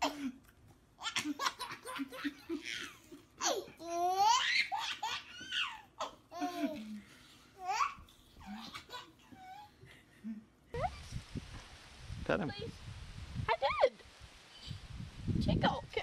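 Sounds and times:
baby laughing: 0:01.0 - 0:07.0, 0:07.6 - 0:09.8.

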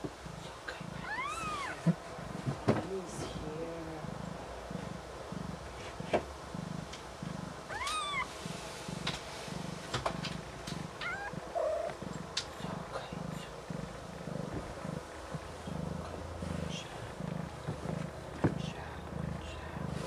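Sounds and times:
cat purring: 0:00.0 - 0:20.0
cat mewing: 0:01.0 - 0:01.9, 0:07.7 - 0:08.3, 0:11.0 - 0:12.0.

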